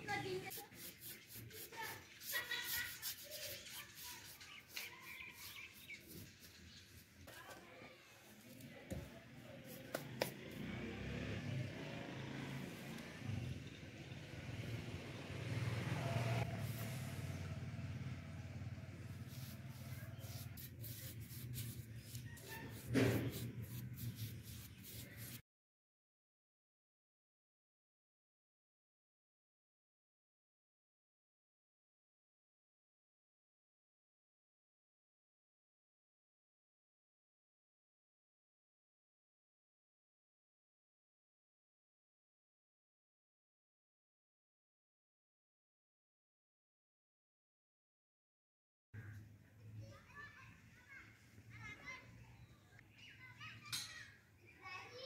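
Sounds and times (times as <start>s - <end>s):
paintbrush swishing: 0.1s - 7.6s, 8.2s - 10.6s, 16.5s - 17.2s, 19.1s - 25.4s.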